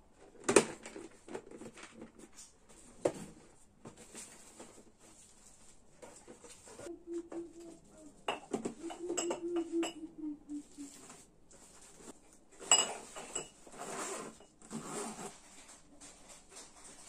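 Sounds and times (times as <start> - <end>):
glass tumbler clinking: 8.3 - 10.0, 12.6 - 13.6.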